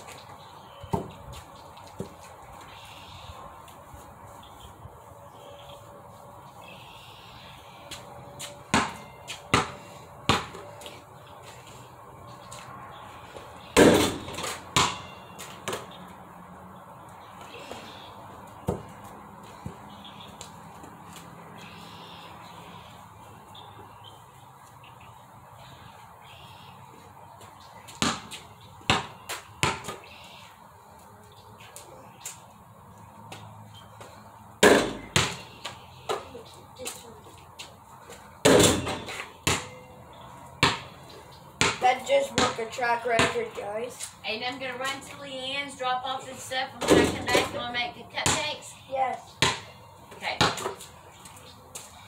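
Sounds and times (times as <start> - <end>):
ball bouncing thuds: 0.9 - 1.2, 8.7 - 10.6, 13.8 - 15.9, 18.6 - 19.0, 28.0 - 30.0, 34.6 - 36.2, 38.4 - 39.7, 40.6 - 40.9, 41.6 - 43.6, 46.8 - 48.6, 49.4 - 50.8
basketball hitting backboard and rim: 8.7 - 10.6, 13.8 - 15.8, 28.0 - 30.0, 34.6 - 35.5, 38.4 - 39.7, 40.6 - 40.9, 41.6 - 42.6, 43.2 - 43.4, 46.8 - 47.6, 49.4 - 49.7
basketball striking hoop: 13.8 - 15.1, 38.4 - 39.7.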